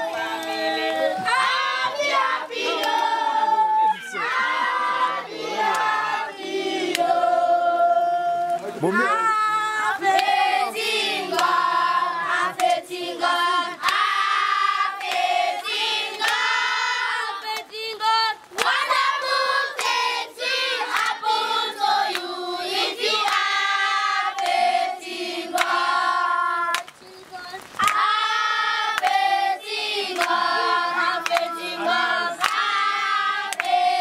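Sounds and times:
children singing together: 0.0s - 8.5s, 9.9s - 34.0s
hand clapping: 5.6s - 5.9s, 6.9s - 7.1s, 10.1s - 10.4s, 11.3s - 11.6s, 12.6s - 12.8s, 16.1s - 16.4s, 22.1s - 22.3s, 23.2s - 23.4s, 24.4s - 24.6s, 26.7s - 27.0s, 27.8s - 28.0s, 28.9s - 29.2s, 30.1s - 30.6s, 31.2s - 31.6s, 32.4s - 32.7s, 33.5s - 33.8s.

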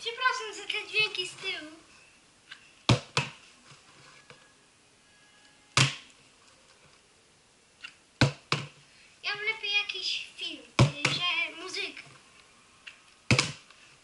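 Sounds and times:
child's voice: 0.0s - 1.9s, 9.2s - 12.2s
plastic bottle thudding on floor: 13.3s - 13.6s.

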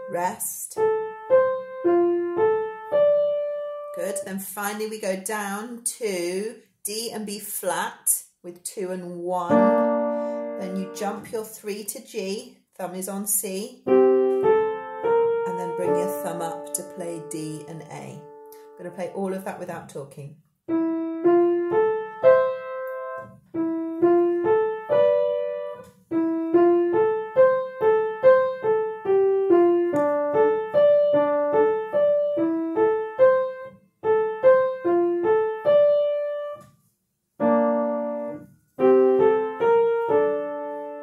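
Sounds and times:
piano single notes: 0.0s - 4.3s, 9.4s - 11.8s, 13.8s - 19.1s, 20.7s - 36.8s, 37.4s - 41.0s.

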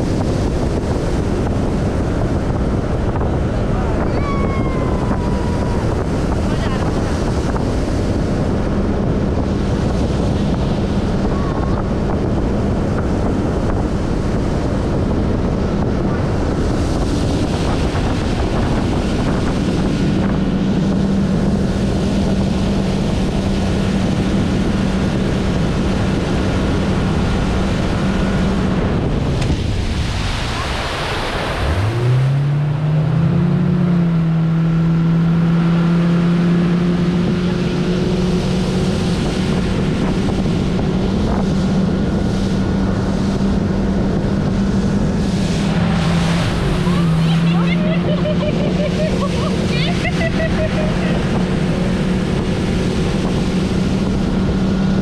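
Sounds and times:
outboard motor droning: 0.0s - 55.0s
water rushing off hull: 0.0s - 55.0s
wind buffeting microphone: 0.0s - 55.0s.

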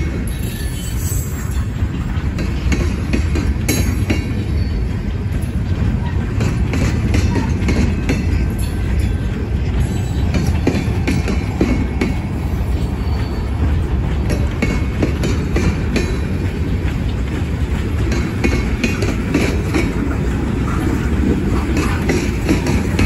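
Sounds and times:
rumble of train wheels on rail: 0.0s - 23.0s
wheels clicking over rail joints: 0.0s - 23.0s
high-pitched wheel squeaks: 0.3s - 1.8s, 12.4s - 13.9s.

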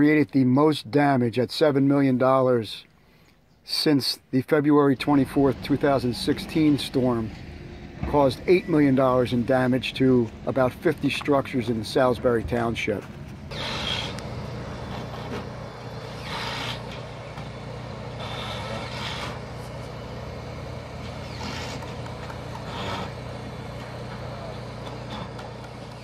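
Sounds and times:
heavy machine engine running: 4.9s - 26.0s.

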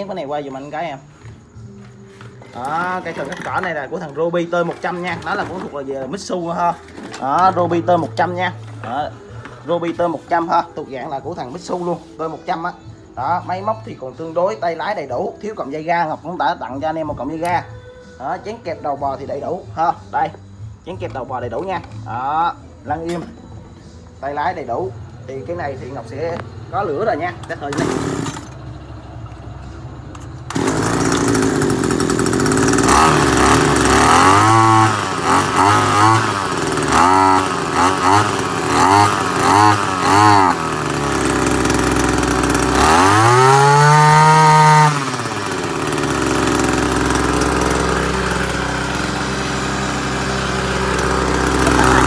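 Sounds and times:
brush cutter engine revving: 2.4s - 10.6s, 27.1s - 28.7s, 30.5s - 52.0s.

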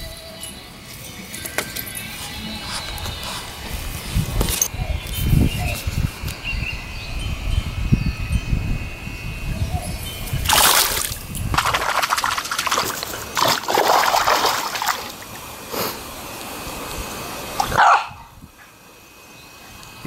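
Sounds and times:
dog splashing in water: 10.5s - 15.3s.

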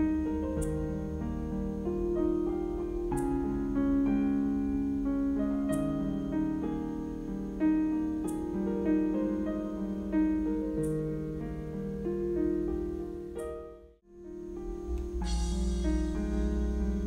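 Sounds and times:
piano music: 0.0s - 17.0s.

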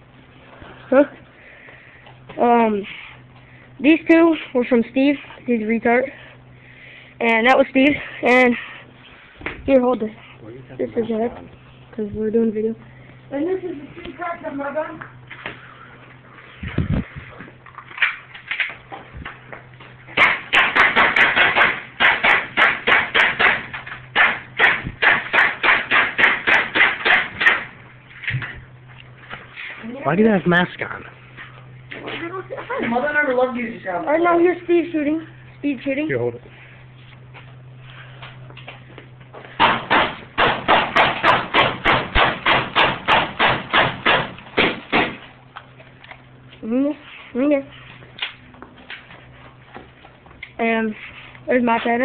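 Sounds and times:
airsoft pistol shots: 20.2s - 27.7s, 39.6s - 45.2s.

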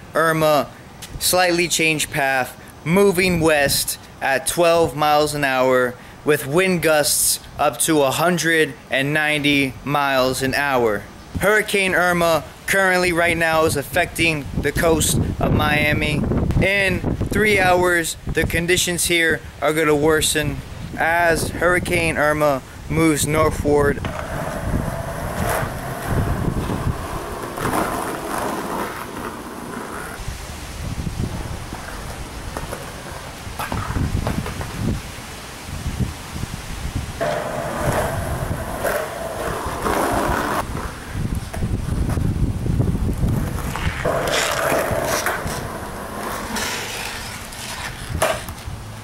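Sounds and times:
wind buffeting microphone: 13.2s - 18.8s, 19.4s - 46.6s
skateboard wheels rolling on asphalt: 23.8s - 49.0s
skateboard knock: 37.2s - 40.9s.

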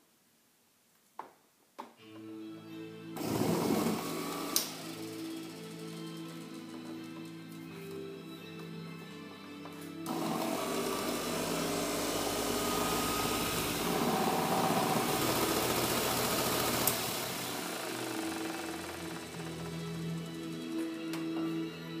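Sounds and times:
background music: 2.0s - 22.0s
orbital car polisher whirring: 3.2s - 5.8s, 10.1s - 20.6s.

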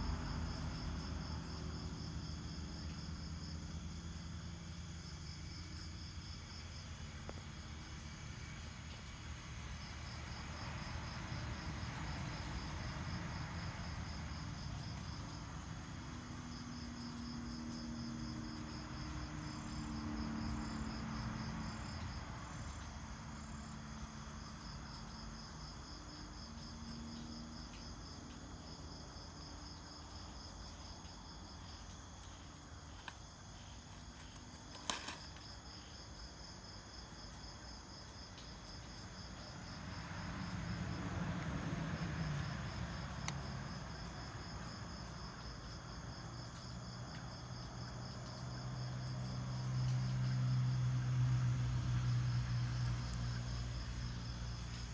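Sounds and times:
high insect trill: 0.0s - 54.9s
insects chirping: 0.0s - 54.9s.

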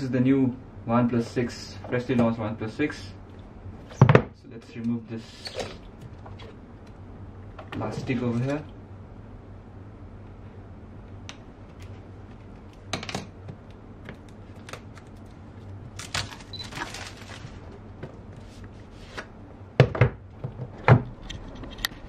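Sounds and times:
plastic wrap crackling: 14.3s - 17.7s.

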